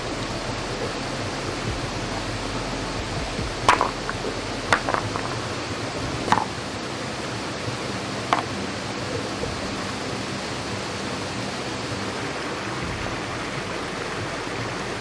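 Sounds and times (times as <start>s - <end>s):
rain hissing: 0.0s - 15.0s.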